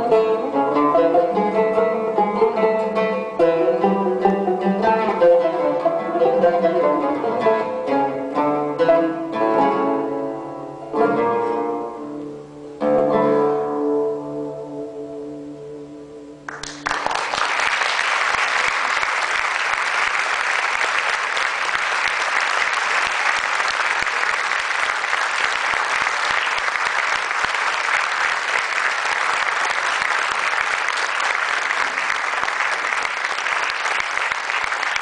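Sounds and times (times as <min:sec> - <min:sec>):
audience applause: 0:16.5 - 0:35.0.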